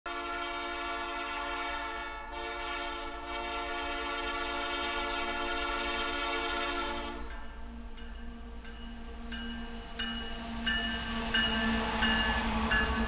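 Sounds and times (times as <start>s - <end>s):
locomotive horn chord: 0.1s - 7.4s.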